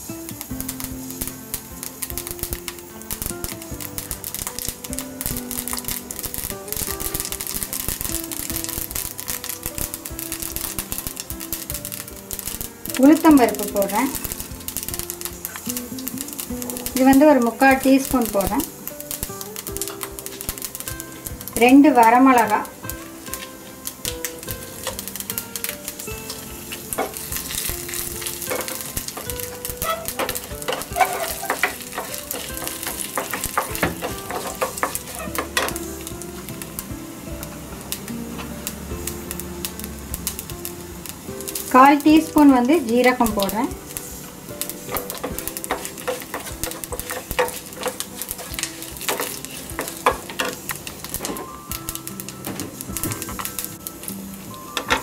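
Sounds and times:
crackles: 0.0 - 55.0
spices sizzling and popping in oil: 0.0 - 55.0
wooden spatula scraping pan: 26.3 - 35.8, 44.9 - 51.2.

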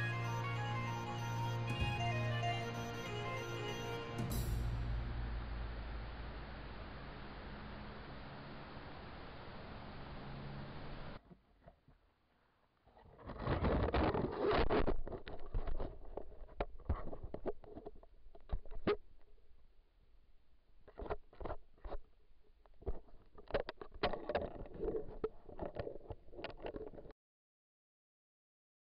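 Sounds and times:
animal rubbing against camera: 13.0 - 17.9.

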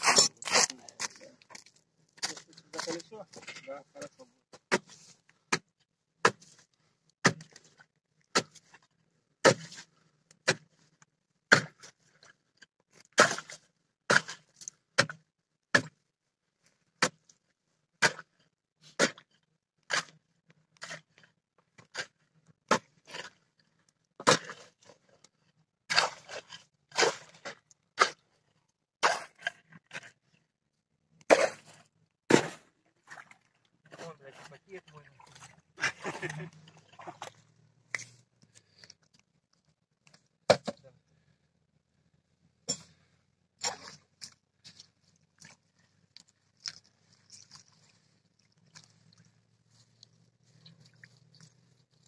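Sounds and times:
ice chisel striking ice: 0.0 - 1.1.

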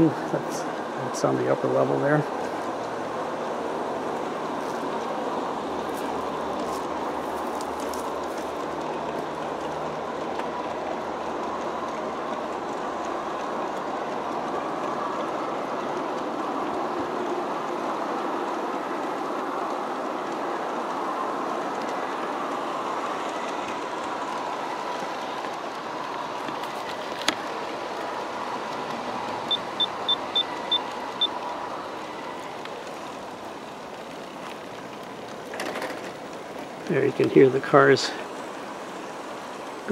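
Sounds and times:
model train wheels rattling: 32.3 - 38.3.

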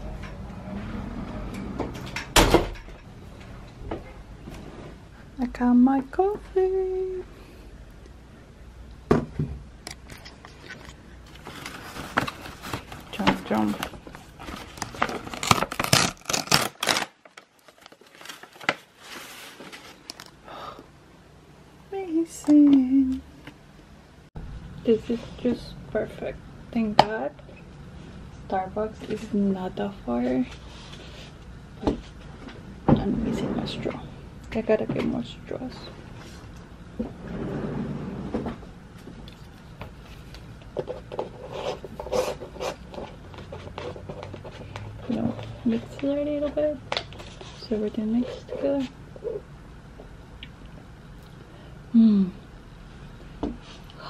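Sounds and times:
bag rustling and crinkling: 10.6 - 20.2.

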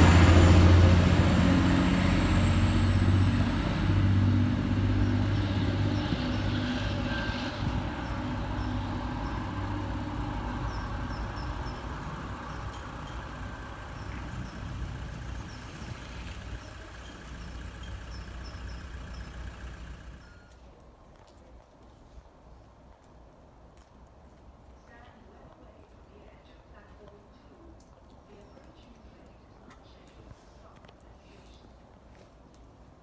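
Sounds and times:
train rail noise: 0.0 - 20.4
train diesel engine: 0.0 - 20.5.

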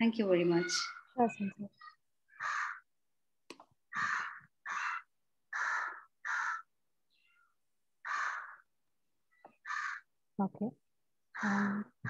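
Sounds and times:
crow cawing: 2.3 - 3.0, 3.9 - 6.8, 8.0 - 8.8, 9.5 - 10.1, 11.3 - 12.0.

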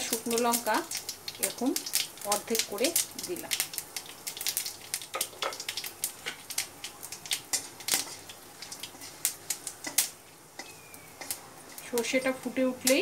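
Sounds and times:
seeds popping in hot oil: 0.0 - 13.0
spatula stirring: 3.9 - 12.6.

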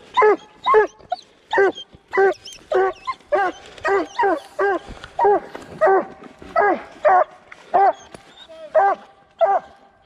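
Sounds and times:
dog barking: 1.6 - 8.1, 8.7 - 9.8.

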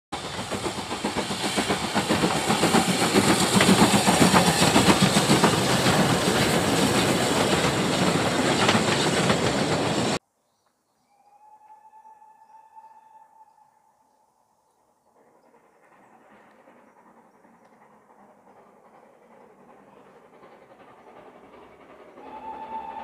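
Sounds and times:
steam locomotive passing: 0.1 - 10.2, 11.4 - 23.0
steam hiss: 0.2 - 10.2, 15.1 - 23.0.

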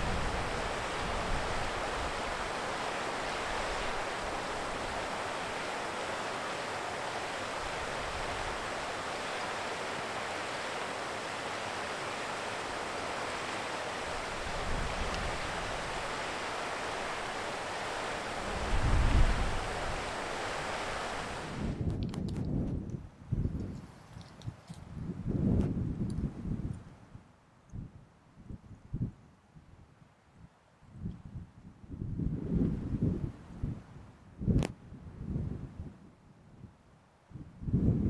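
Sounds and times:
wind buffeting microphone: 0.0 - 5.8, 14.0 - 26.9, 30.9 - 36.7, 37.3 - 38.0
wind hiss: 0.0 - 27.3.

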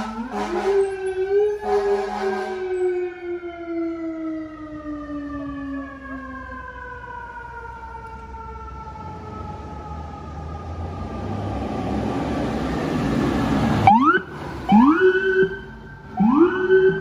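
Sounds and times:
horn blast: 0.0 - 0.9, 1.6 - 2.7
fire truck siren winding down: 0.0 - 17.0.

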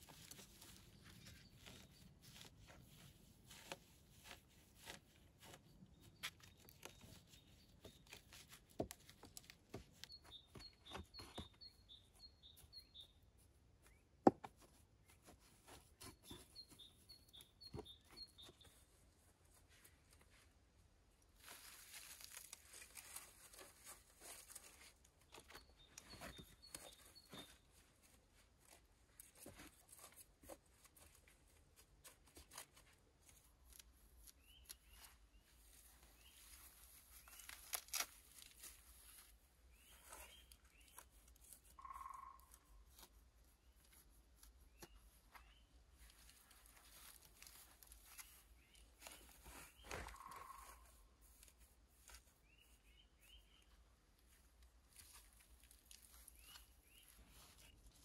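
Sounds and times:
knife tearing through moss: 37.3 - 38.6.

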